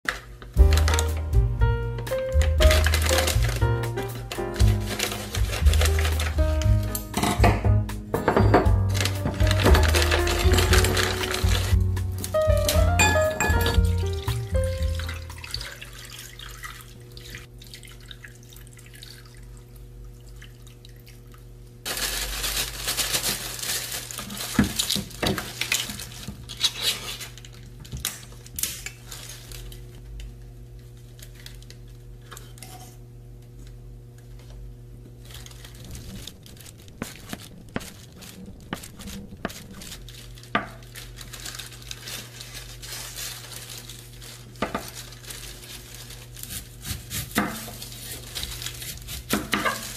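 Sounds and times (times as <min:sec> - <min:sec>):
steady low hum: 0:32.9 - 0:42.9.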